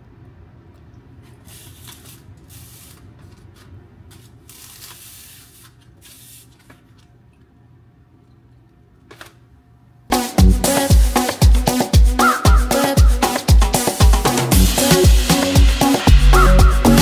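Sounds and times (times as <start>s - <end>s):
short hissing sprays: 1.3s - 3.2s, 4.5s - 6.7s.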